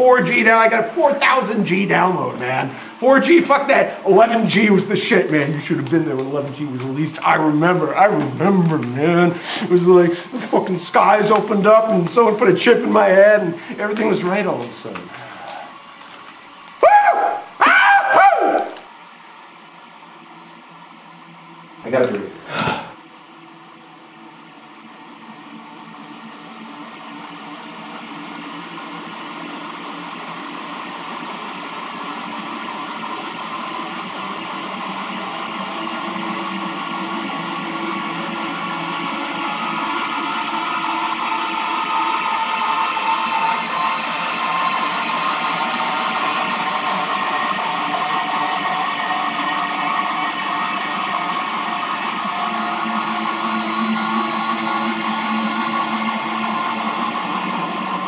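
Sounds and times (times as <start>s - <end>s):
hissing drone: 0.0s - 18.9s, 32.2s - 58.0s.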